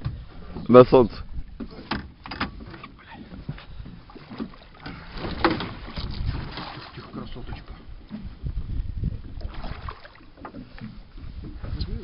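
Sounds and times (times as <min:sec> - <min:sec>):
knocks against metal boat: 0:01.6 - 0:03.6, 0:04.3 - 0:06.7
water splashing: 0:02.5 - 0:08.3, 0:09.1 - 0:11.0.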